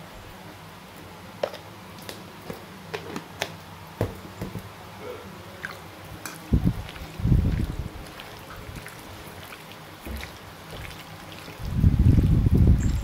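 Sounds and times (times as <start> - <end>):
hand kneading raw liver squelching: 5.0 - 13.0.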